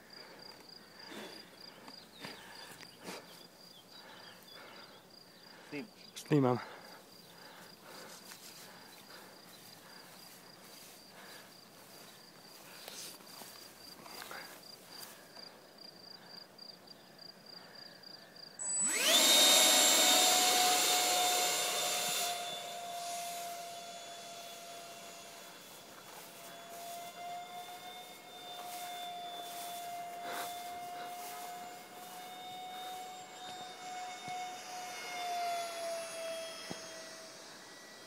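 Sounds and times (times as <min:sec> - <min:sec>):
crickets chirping: 0:00.0 - 0:18.8
electric ducted fan whine: 0:18.6 - 0:38.0.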